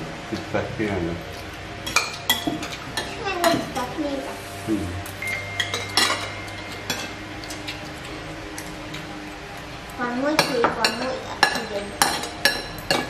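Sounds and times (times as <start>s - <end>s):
spoons clinking on ceramic bowls: 1.8s - 3.7s, 5.2s - 7.9s, 10.4s - 13.0s
low hum: 3.2s - 10.3s.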